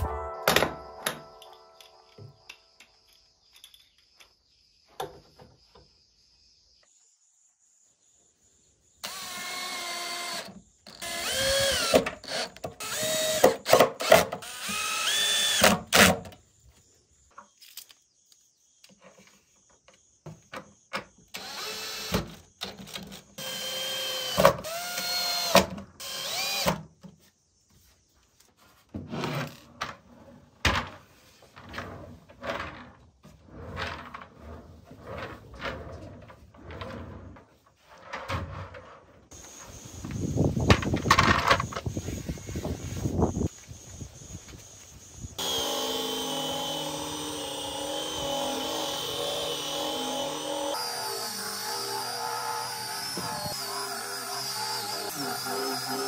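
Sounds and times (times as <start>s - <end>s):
cordless drill driving screws: 9.0s - 16.1s, 21.3s - 26.8s, 45.4s - 56.0s.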